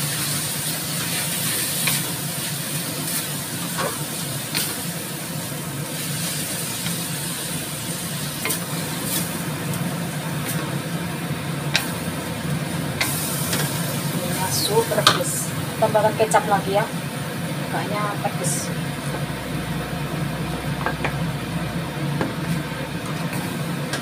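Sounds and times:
noodles sizzling in a wok: 0:00.0 - 0:24.0
spatula scraping and knocking wok: 0:00.2 - 0:04.9, 0:05.8 - 0:11.0, 0:11.6 - 0:15.3
steady low hum: 0:01.1 - 0:24.0.

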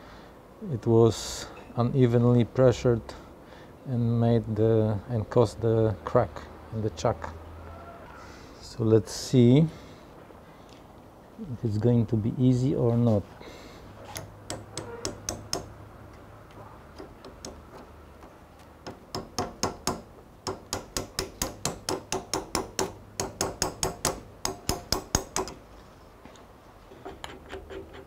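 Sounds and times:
hammer tapping steel wedge: 0:14.1 - 0:16.2, 0:16.9 - 0:25.6.

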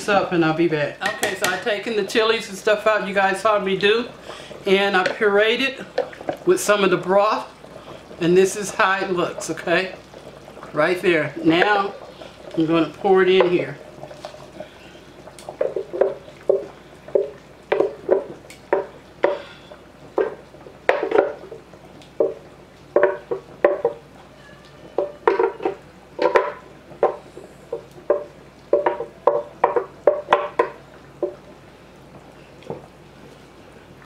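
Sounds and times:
puree plopping into liquid: 0:11.4 - 0:24.1, 0:24.9 - 0:31.5.

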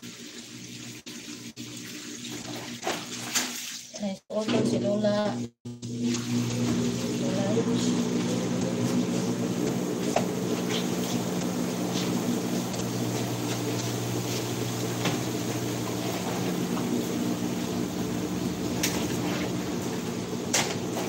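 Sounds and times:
low machine hum: 0:04.4 - 0:21.0.

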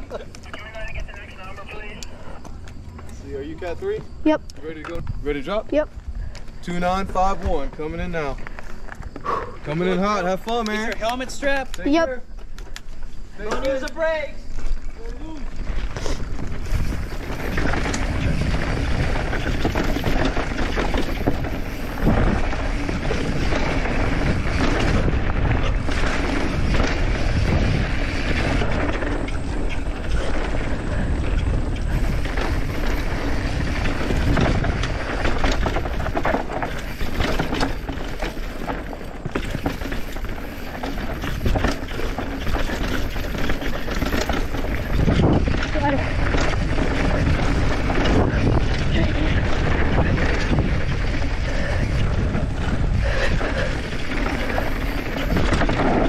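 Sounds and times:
tyres on dirt: 0:00.0 - 0:56.0
bike knocking and clattering: 0:09.8 - 0:56.0
wind rushing over microphone: 0:15.4 - 0:56.0.

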